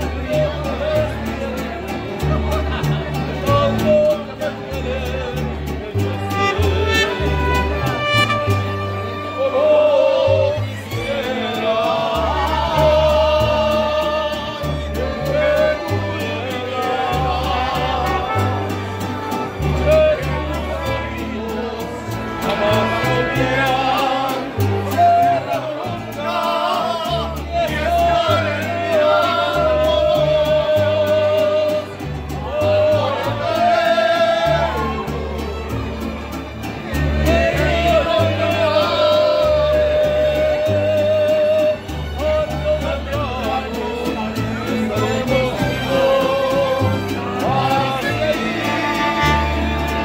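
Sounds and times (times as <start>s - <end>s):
bass line: 0.0s - 50.0s
people singing along: 9.2s - 35.9s, 36.8s - 50.0s.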